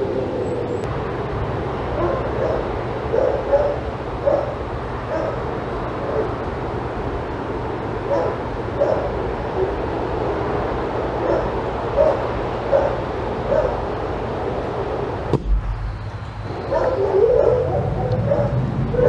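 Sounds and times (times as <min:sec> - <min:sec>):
steady background noise: 0:00.0 - 0:19.0
dog yipping: 0:02.0 - 0:05.4, 0:08.1 - 0:09.8, 0:11.2 - 0:13.8, 0:16.6 - 0:19.0.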